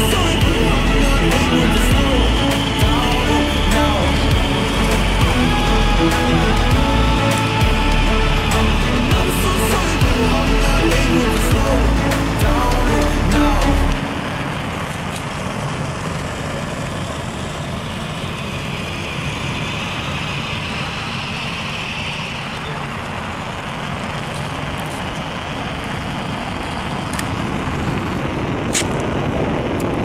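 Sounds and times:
jet engine rushing noise: 0:00.0 - 0:30.0.

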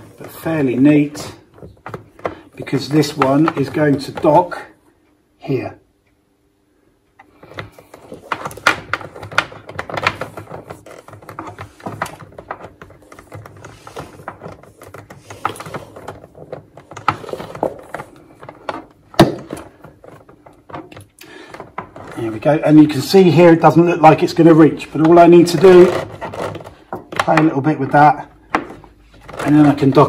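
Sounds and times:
cable rubbing and slapping machine: 0:07.4 - 0:22.8, 0:23.6 - 0:27.5.

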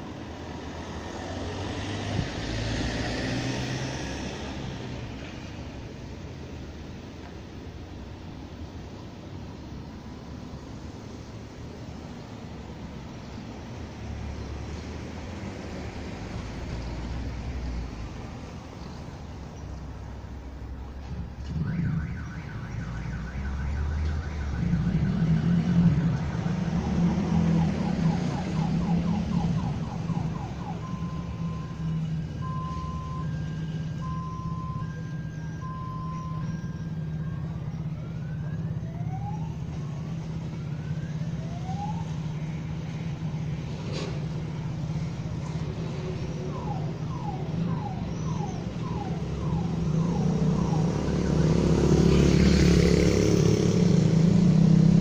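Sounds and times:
passing vehicle: 0:00.0 - 0:55.0
street traffic hum: 0:00.0 - 0:55.0
car alarm: 0:21.5 - 0:37.8, 0:46.3 - 0:52.0.

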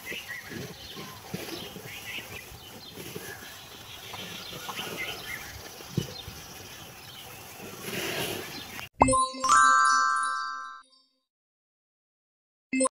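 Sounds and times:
cattle munching straw: 0:00.0 - 0:08.9.

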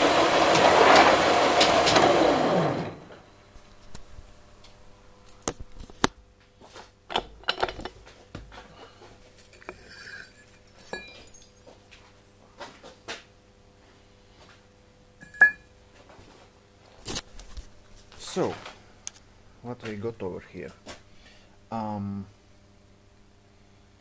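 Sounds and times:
milling machine winding down: 0:00.0 - 0:03.3
faint steady hum: 0:02.9 - 0:24.0.

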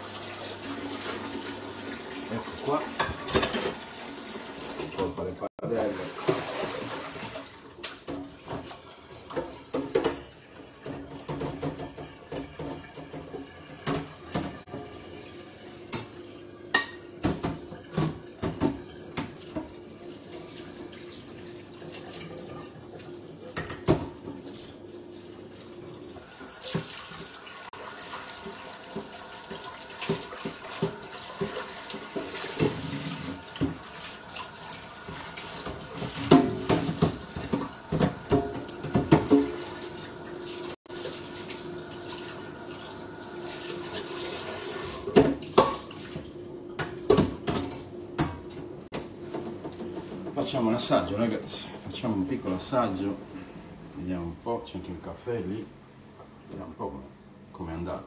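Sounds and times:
dishes clattering: 0:02.9 - 0:03.9, 0:08.0 - 0:14.9, 0:15.9 - 0:19.8, 0:23.4 - 0:24.5, 0:35.1 - 0:39.6, 0:44.9 - 0:46.1
tap running: 0:28.4 - 0:50.3.

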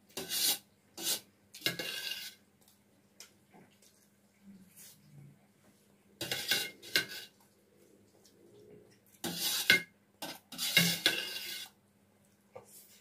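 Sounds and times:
metal spoon scraping steel plate: 0:00.2 - 0:02.4, 0:06.2 - 0:07.3, 0:09.2 - 0:11.8.

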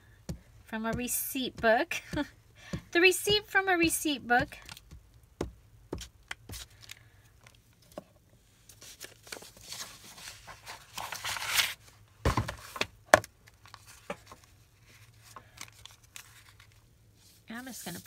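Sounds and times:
paper crinkling: 0:08.7 - 0:11.8
paper rustling: 0:08.7 - 0:12.8.

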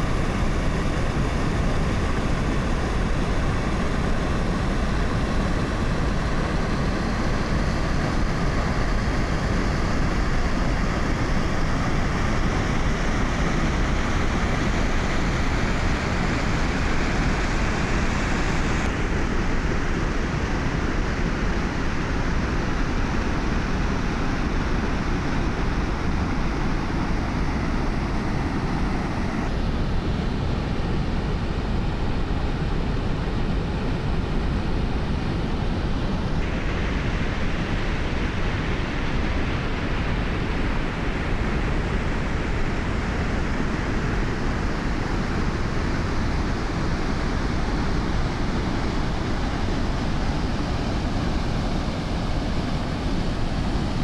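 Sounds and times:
water rushing over weir: 0:36.4 - 0:54.0.

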